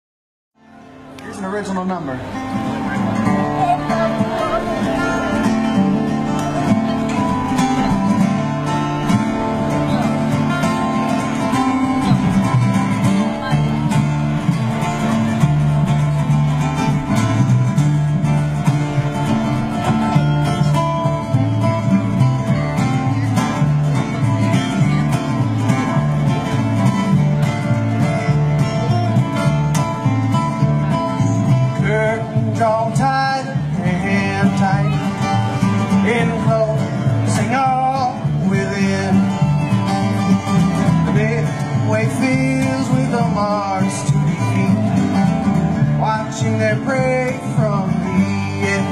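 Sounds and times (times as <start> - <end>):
acoustic guitars strumming: 0.6 - 48.9
plucked upright bass: 2.2 - 48.9.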